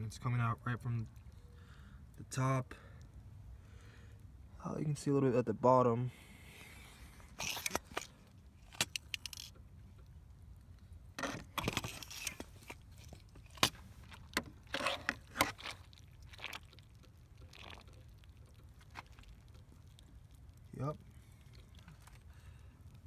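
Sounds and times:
handling clicks and scrapes: 0:07.2 - 0:09.6, 0:11.2 - 0:15.8.

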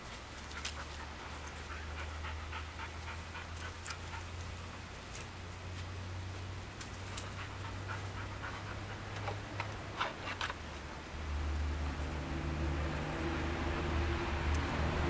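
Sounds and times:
dog panting: 0:00.2 - 0:05.3, 0:07.0 - 0:10.2.

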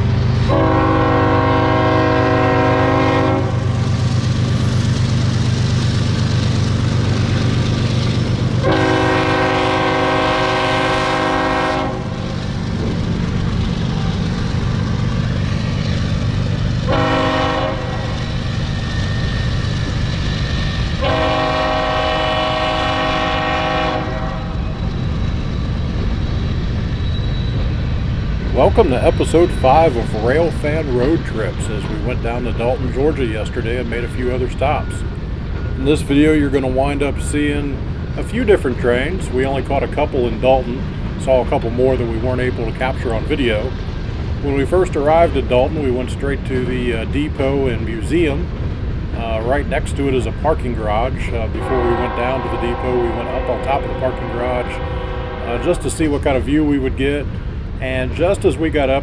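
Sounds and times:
diesel locomotives rumbling: 0:00.0 - 0:59.0
train air horn blasts: 0:00.5 - 0:03.7, 0:08.6 - 0:12.2, 0:16.9 - 0:18.2, 0:21.0 - 0:24.6, 0:51.6 - 0:56.0.

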